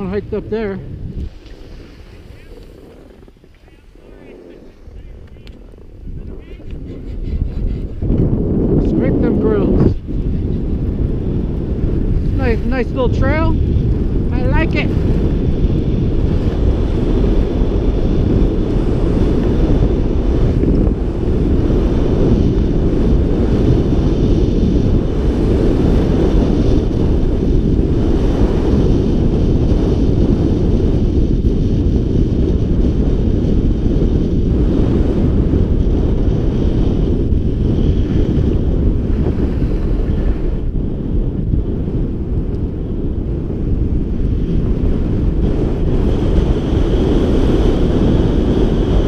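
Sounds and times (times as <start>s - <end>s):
wind buffeting microphone: 0.0s - 49.0s
skis sliding over snow: 0.6s - 7.9s, 12.1s - 13.5s.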